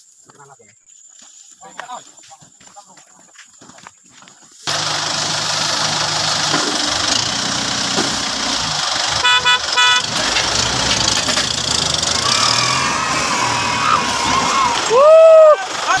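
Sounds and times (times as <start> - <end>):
vehicle engine running: 4.7 - 16.0
horn toots: 8.5 - 13.3.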